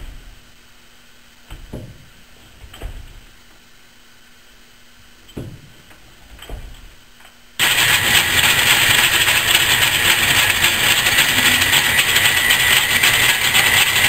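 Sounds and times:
metal lathe whirring: 7.6s - 14.0s.

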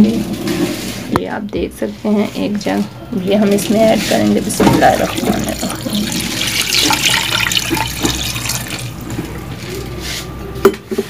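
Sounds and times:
water pouring into pot: 3.5s - 9.4s.

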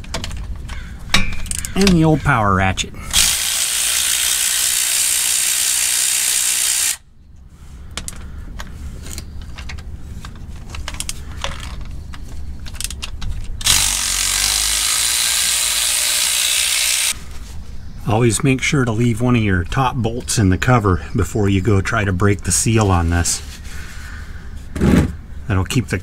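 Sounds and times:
cordless power ratchet spinning: 3.1s - 7.0s, 13.6s - 17.2s.

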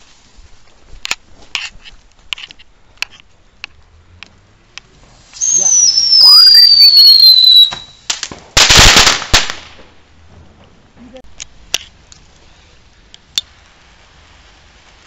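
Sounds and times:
firework whistling: 5.0s - 9.6s
firework bang: 5.4s - 10.6s.

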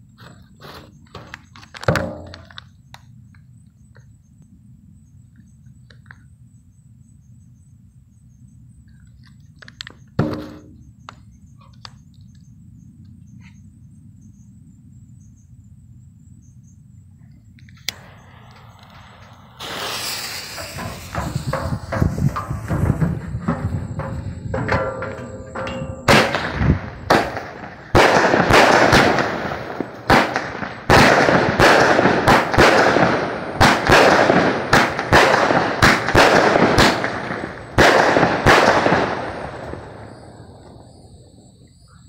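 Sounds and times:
quick small firework pops: 17.8s - 25.3s
firework crackling hiss: 17.8s - 25.4s, 26.1s - 41.2s
loud aerial firework shots: 17.9s - 40.6s.

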